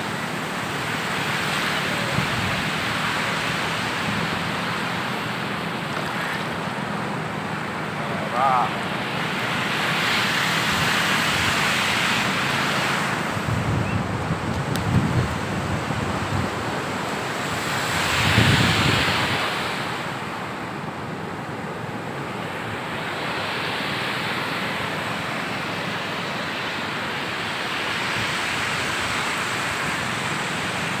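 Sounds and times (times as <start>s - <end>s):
ocean surf breaking: 0.0s - 31.0s
wind buffeting microphone: 13.1s - 19.5s.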